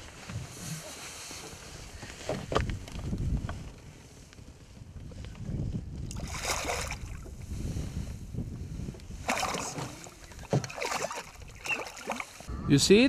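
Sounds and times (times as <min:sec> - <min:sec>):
fish splashing at water surface: 0:06.1 - 0:07.2, 0:09.2 - 0:12.5.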